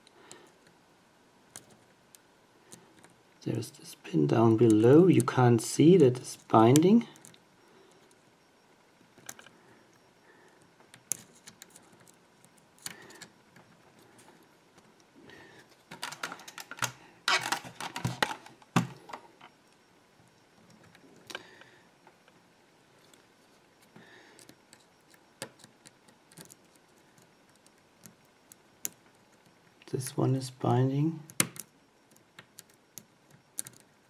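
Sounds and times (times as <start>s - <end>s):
lock pick clicking and scratching: 10.9s - 13.7s, 24.4s - 29.5s, 31.3s - 33.9s.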